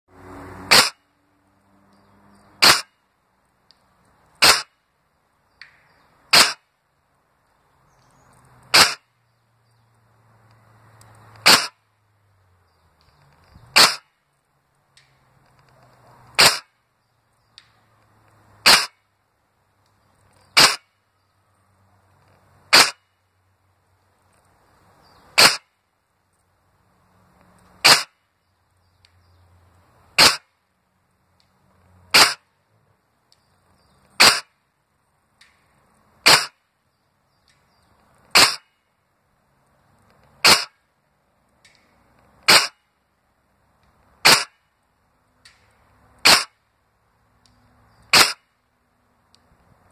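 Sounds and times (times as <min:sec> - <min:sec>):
airsoft rifle shots: 0:00.7 - 0:01.0, 0:02.6 - 0:03.0, 0:04.4 - 0:04.8, 0:06.3 - 0:06.6, 0:08.7 - 0:09.1, 0:11.4 - 0:11.8, 0:13.7 - 0:14.1, 0:16.4 - 0:16.7, 0:18.6 - 0:19.0, 0:20.6 - 0:20.9, 0:22.7 - 0:23.0, 0:25.4 - 0:25.7, 0:27.8 - 0:28.2, 0:30.2 - 0:30.5, 0:32.1 - 0:32.4, 0:34.2 - 0:34.5, 0:36.2 - 0:36.6, 0:38.3 - 0:38.7, 0:40.4 - 0:40.8, 0:42.4 - 0:42.8, 0:44.2 - 0:44.6, 0:46.2 - 0:46.6, 0:48.1 - 0:48.5.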